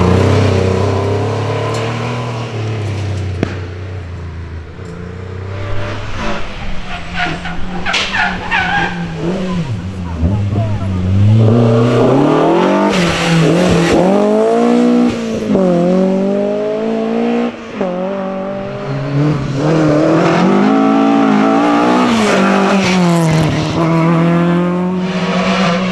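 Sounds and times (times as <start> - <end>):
rally car engines revving hard: 0.0 - 3.7, 4.7 - 25.9.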